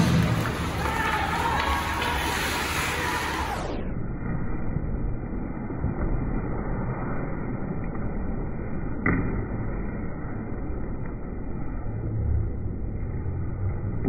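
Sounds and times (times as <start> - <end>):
arena crowd noise: 0.0 - 3.9.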